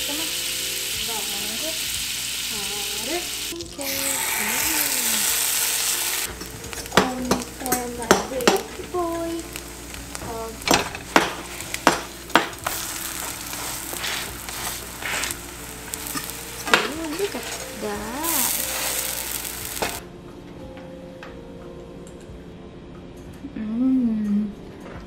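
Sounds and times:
batter sizzling in pan: 0:00.0 - 0:20.0
spatula tapping pan: 0:06.3 - 0:09.0, 0:10.1 - 0:17.6.

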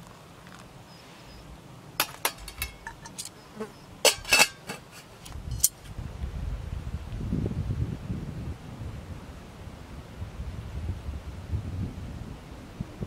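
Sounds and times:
metal pot and lid clinking: 0:02.0 - 0:03.4, 0:04.0 - 0:05.8.

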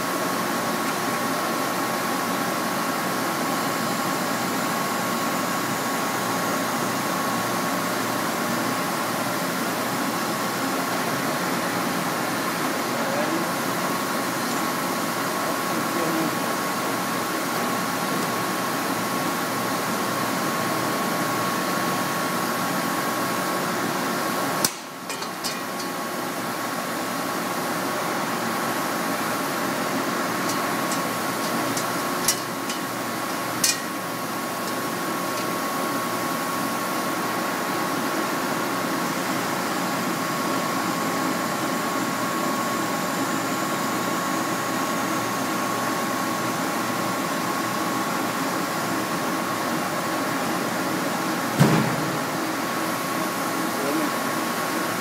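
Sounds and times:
press machine humming: 0:24.3 - 0:38.1.

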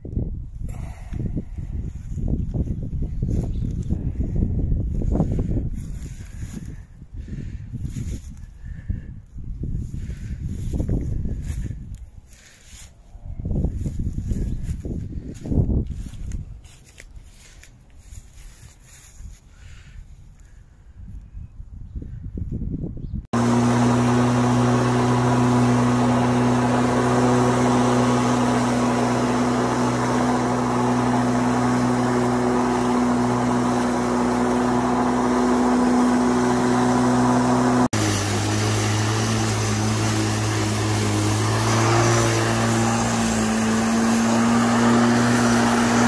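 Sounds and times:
electric lawn mower humming: 0:23.4 - 0:46.0.

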